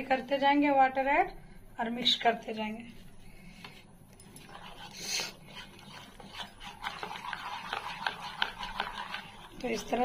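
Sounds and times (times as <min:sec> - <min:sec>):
batter stirred in a bowl: 0:03.2 - 0:10.0.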